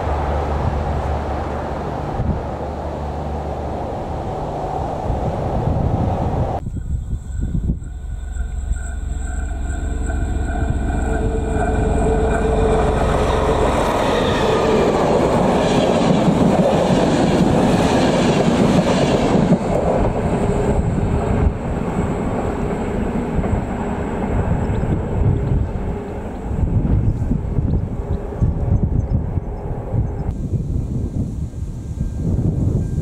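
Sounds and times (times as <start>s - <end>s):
locomotive rushing past: 0.0s - 30.3s
diesel engine droning: 0.0s - 30.4s
train wheels rolling: 7.3s - 26.5s.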